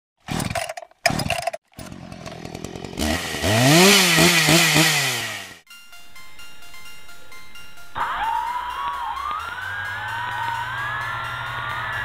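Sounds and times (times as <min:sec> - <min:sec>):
small motor buzzing: 0:01.1 - 0:05.6.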